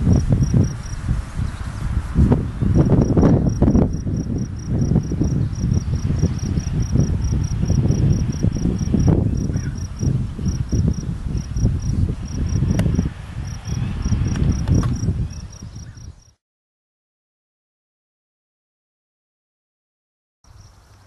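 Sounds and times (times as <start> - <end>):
low rumbling noise: 0.0 - 15.9
high-pitched insect chirping: 2.8 - 16.3.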